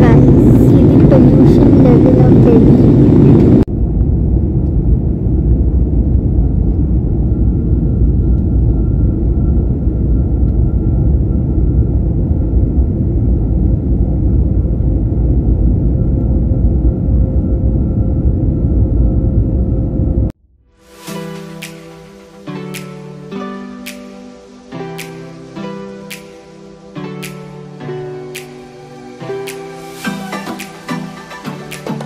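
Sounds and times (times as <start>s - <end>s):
jet engine rumble: 0.0s - 20.4s.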